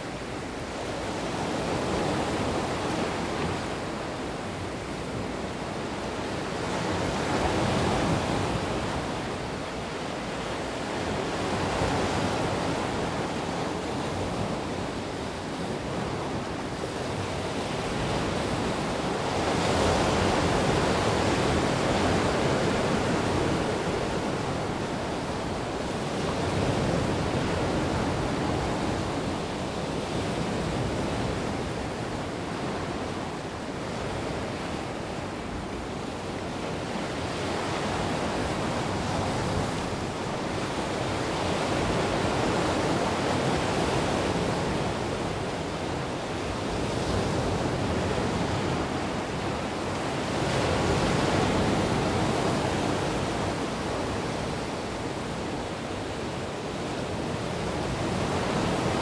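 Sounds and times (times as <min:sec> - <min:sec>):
waves breaking on stone beach: 0:19.5 - 0:29.4.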